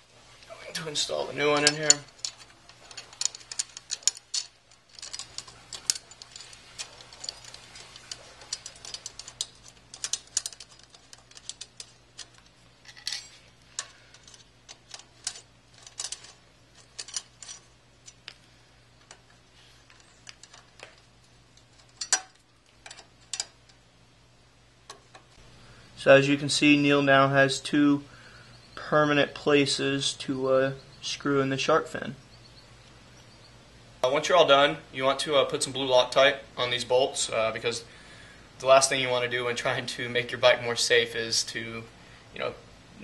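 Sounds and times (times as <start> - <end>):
light metal clicks and taps: 1.6 - 23.8.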